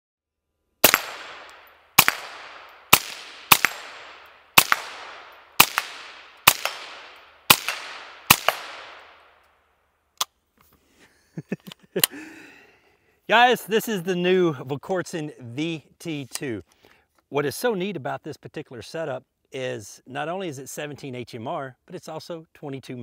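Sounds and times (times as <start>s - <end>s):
bullet hitting steel target: 0.8s - 9.2s
rifle shots with echo: 0.8s - 9.4s.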